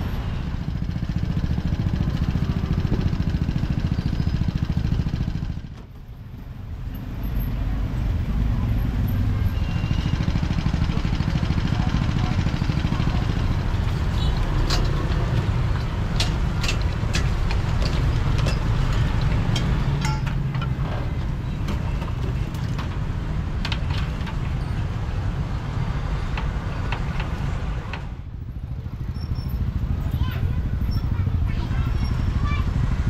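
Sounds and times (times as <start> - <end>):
passing traffic rumble: 0.0 - 33.0
metal clicks and clinks: 14.6 - 20.8.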